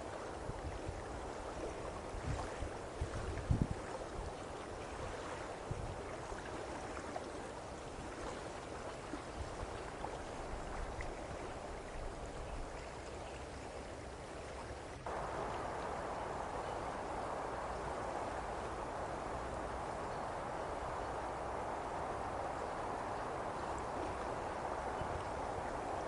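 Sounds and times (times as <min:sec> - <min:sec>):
rushing water: 0:00.0 - 0:26.0
wind: 0:00.0 - 0:26.0
wind bumps on microphone: 0:01.9 - 0:04.3, 0:05.0 - 0:06.2.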